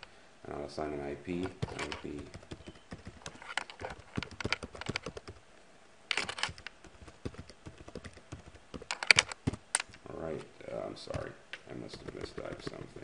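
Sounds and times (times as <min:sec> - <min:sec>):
typing on computer keyboard: 0:01.4 - 0:05.4, 0:06.1 - 0:10.0, 0:11.9 - 0:12.8.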